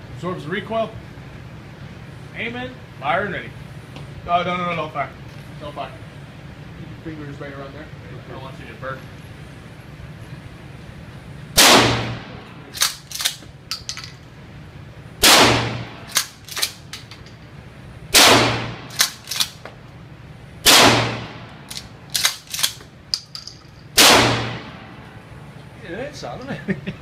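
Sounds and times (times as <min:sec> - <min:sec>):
shotgun blasts: 0:11.6 - 0:13.2, 0:15.2 - 0:16.4, 0:18.1 - 0:19.5, 0:20.6 - 0:21.5, 0:24.0 - 0:24.9
shotgun slide clacks: 0:12.7 - 0:14.2, 0:16.0 - 0:17.4, 0:18.9 - 0:19.6, 0:21.7 - 0:23.8.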